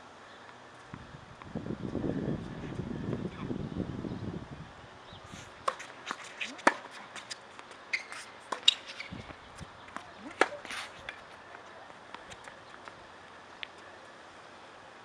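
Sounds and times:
wind rumble on microphone: 0:00.9 - 0:05.5
shoe scuffs on court: 0:05.3 - 0:11.4
tennis ball struck by racquets: 0:05.6 - 0:11.3.

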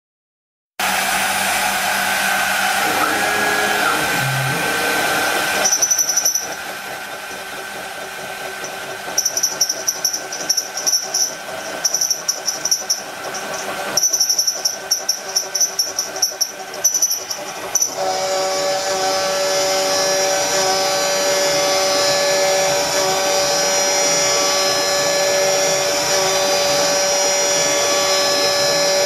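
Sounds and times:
end mill cutting plate: 0:00.8 - 0:29.0
router spindle whining: 0:00.8 - 0:29.0.

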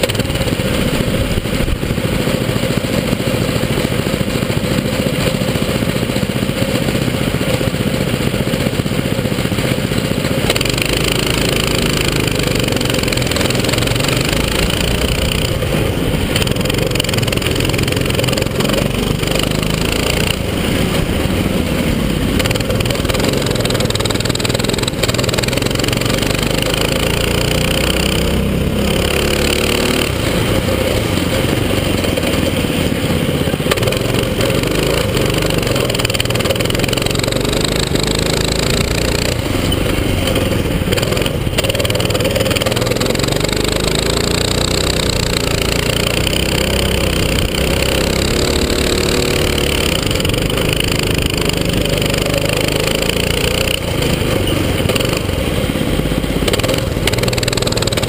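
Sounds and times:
go-kart engine at racing speed: 0:00.0 - 0:58.0.

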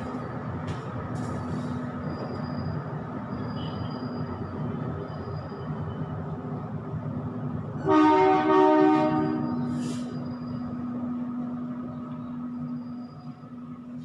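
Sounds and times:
loud horn blast: 0:07.8 - 0:09.5.

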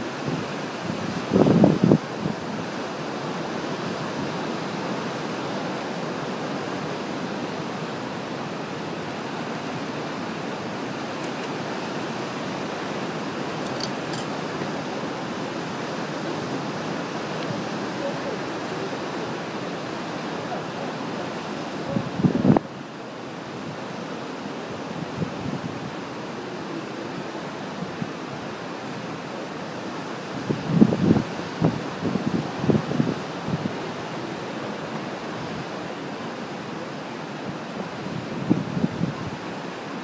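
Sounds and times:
wind buffeting microphone: 0:00.0 - 0:02.8, 0:21.8 - 0:22.7, 0:30.3 - 0:34.0
ocean surf washing over rocks: 0:00.0 - 0:40.0.

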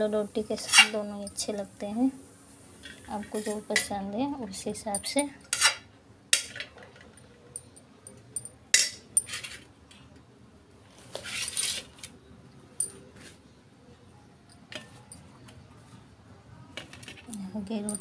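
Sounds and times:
spoon scraping steel plate: 0:00.5 - 0:01.1, 0:02.8 - 0:04.0, 0:05.0 - 0:06.6
steel spoon clinking on dishes: 0:06.4 - 0:09.4.

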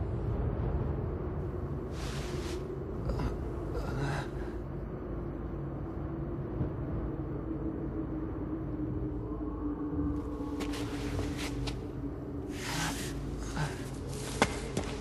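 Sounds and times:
low held drone: 0:00.0 - 0:15.0
rumble: 0:00.0 - 0:15.0.

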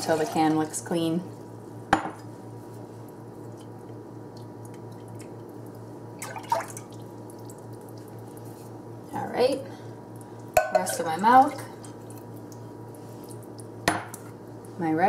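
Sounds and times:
steady low hum: 0:00.0 - 0:15.0
milk trickling and dripping: 0:03.1 - 0:08.8, 0:11.5 - 0:13.8.

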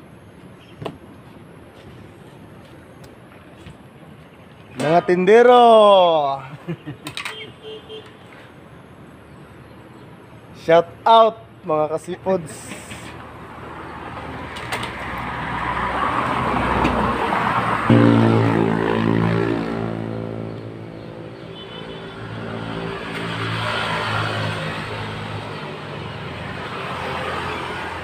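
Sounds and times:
vehicles passing on road: 0:00.0 - 0:28.0
low engine hum: 0:17.9 - 0:21.5.

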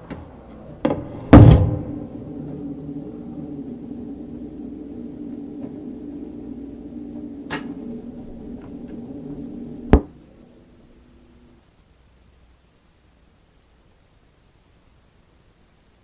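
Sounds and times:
low droning tones: 0:00.0 - 0:11.6.

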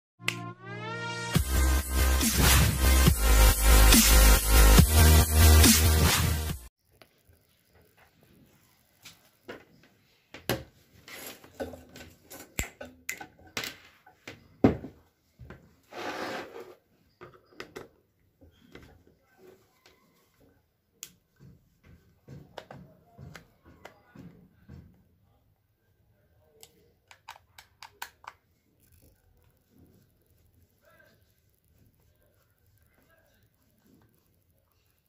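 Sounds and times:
plastic clicks taps and scrapes: 0:26.6 - 0:28.5.

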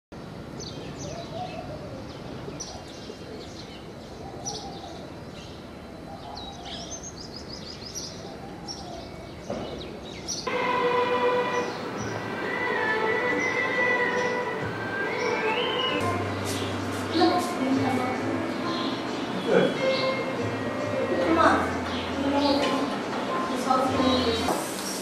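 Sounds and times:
distant traffic rumble: 0:00.2 - 0:24.9
small birds chirping: 0:00.6 - 0:10.5, 0:11.5 - 0:22.9
music with long held notes: 0:10.5 - 0:24.6.

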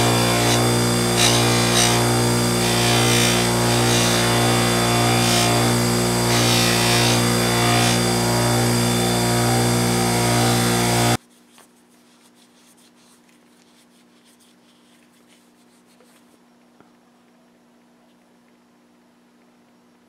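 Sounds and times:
bench grinder motor hum: 0:00.0 - 0:11.2
knife blade hissing on grinder wheel: 0:00.0 - 0:11.2.

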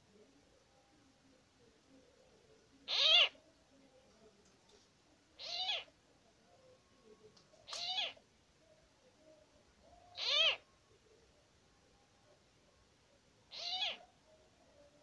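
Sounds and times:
animal calling: 0:02.9 - 0:03.4, 0:05.4 - 0:05.9, 0:07.7 - 0:08.2, 0:10.1 - 0:10.6, 0:13.5 - 0:14.1.

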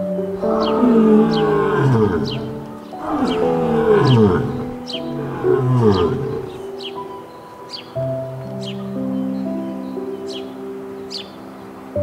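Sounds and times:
soft background music: 0:00.0 - 0:12.0
lion roaring: 0:00.3 - 0:06.8.

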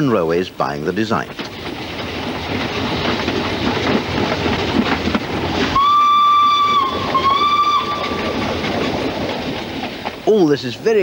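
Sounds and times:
steam locomotive running by: 0:00.0 - 0:11.0
steam whistle blasts: 0:05.8 - 0:08.4.

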